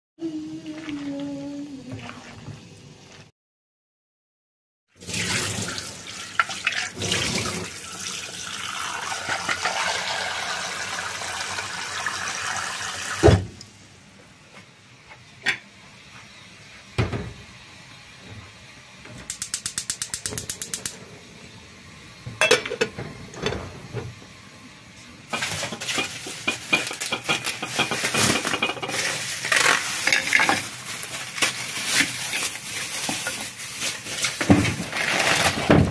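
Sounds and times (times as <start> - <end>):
tap water running: 5.0 - 13.7, 25.3 - 34.5
gas stove igniter clicking: 19.3 - 21.0
plastic bag crinkling: 25.3 - 35.9.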